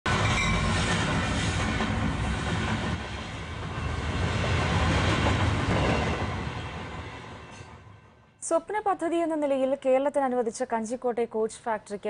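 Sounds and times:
train rumbling on rails: 0.1 - 8.3.

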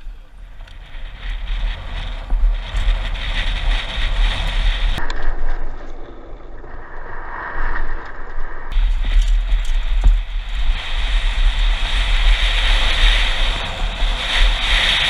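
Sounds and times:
bike tyres crunching on gravel: 0.0 - 5.0, 8.7 - 15.0
wind buffeting a camera: 0.0 - 15.0.

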